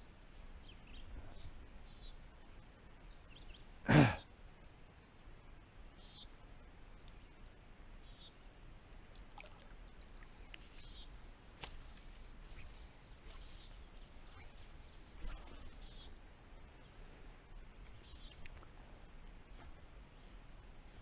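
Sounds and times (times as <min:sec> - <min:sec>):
steady high hum: 0:00.0 - 0:21.0
small splashes on water: 0:09.1 - 0:10.7
fly line clicks: 0:09.1 - 0:16.1, 0:17.8 - 0:19.4.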